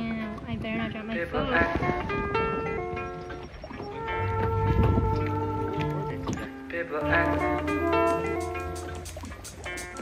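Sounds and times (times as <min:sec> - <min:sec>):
background music: 0:01.2 - 0:10.0.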